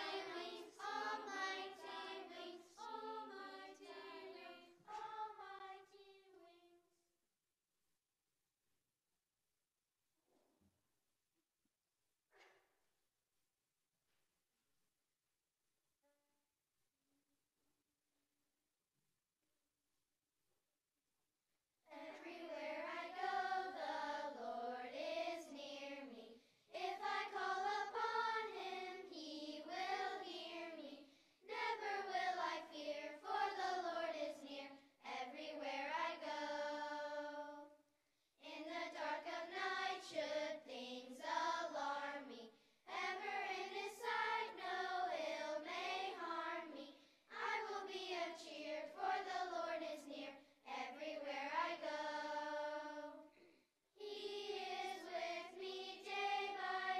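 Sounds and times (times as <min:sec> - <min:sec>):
children's choir singing: 0:00.0 - 0:06.7, 0:21.9 - 0:37.8, 0:38.4 - 0:56.9.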